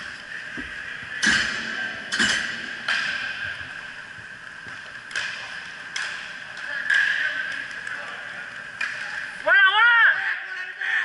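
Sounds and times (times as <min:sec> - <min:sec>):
hockey sticks clacking: 0:04.7 - 0:09.6.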